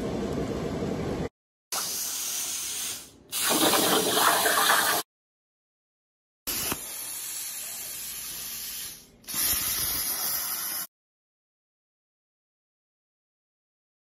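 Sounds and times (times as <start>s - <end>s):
plasma torch hissing: 1.8s - 4.2s, 6.5s - 10.9s.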